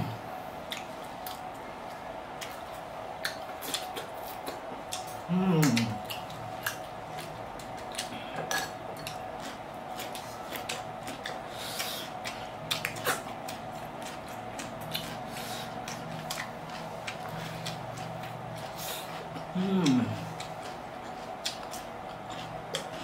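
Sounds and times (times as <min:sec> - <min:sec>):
people chewing and biting food: 0:00.0 - 0:23.0
steady background hum: 0:00.0 - 0:23.0.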